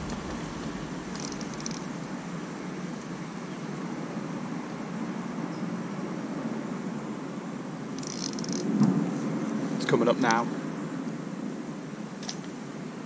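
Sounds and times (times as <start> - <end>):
low rumbling background noise: 0.0 - 13.0.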